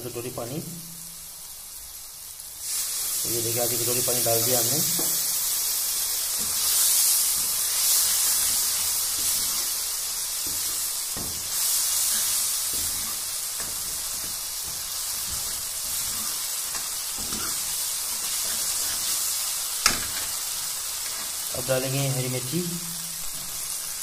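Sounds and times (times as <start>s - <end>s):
spices sizzling in hot oil: 0.0s - 24.0s
ladle knocking and scraping pan: 10.4s - 19.1s.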